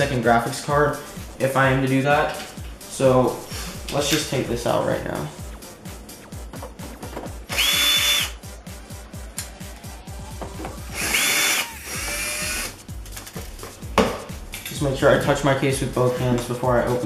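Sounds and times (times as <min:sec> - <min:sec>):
cordless drill motor whine: 0:07.5 - 0:08.4, 0:10.9 - 0:12.8.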